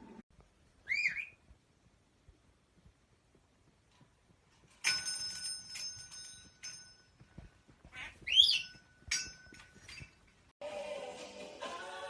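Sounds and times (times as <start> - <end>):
parrot whistle: 0.8 - 1.4.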